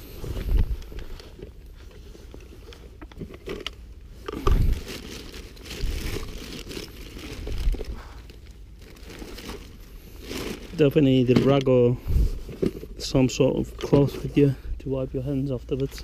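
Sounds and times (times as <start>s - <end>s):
crinkling and rustling handling: 0.0s - 16.0s.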